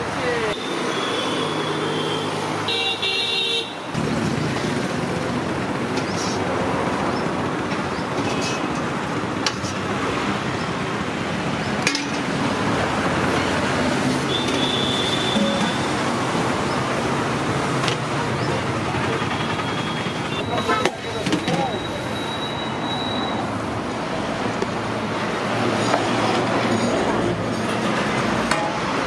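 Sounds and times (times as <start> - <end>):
road traffic noise: 0.0 - 29.0
vehicle horn honking: 0.5 - 3.8, 14.3 - 15.9.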